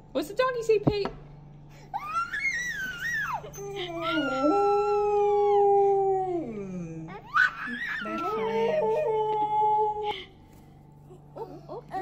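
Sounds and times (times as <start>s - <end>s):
dog howling: 2.1s - 10.2s.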